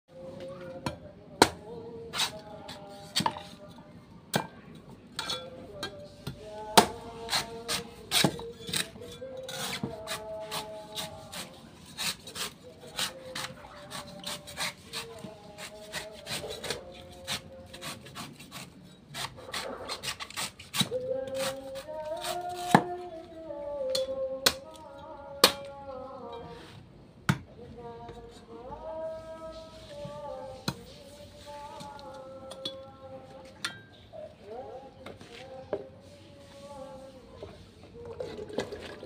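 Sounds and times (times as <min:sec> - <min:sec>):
cleaver cutting coconut husk: 0:01.4 - 0:03.3, 0:06.8 - 0:23.0.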